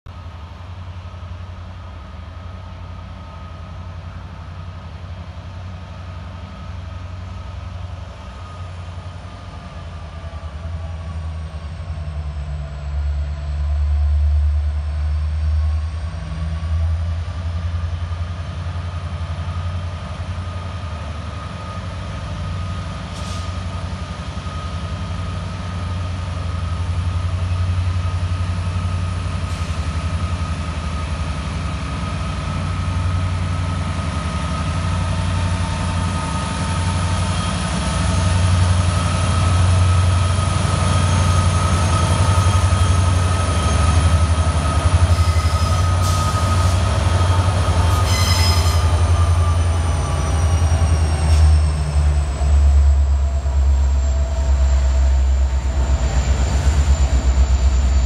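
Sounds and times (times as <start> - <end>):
diesel locomotives rumbling: 0.1 - 58.0
faint high whine: 51.9 - 58.0.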